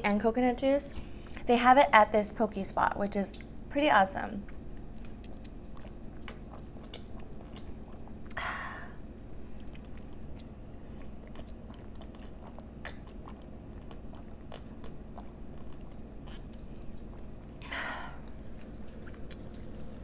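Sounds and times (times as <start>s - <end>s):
wet mouth clicks: 4.4s - 8.4s, 9.7s - 17.1s, 18.7s - 19.7s.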